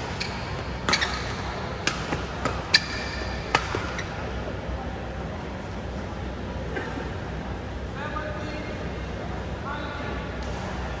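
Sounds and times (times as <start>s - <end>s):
racket hitting shuttlecock: 0.1s - 4.1s.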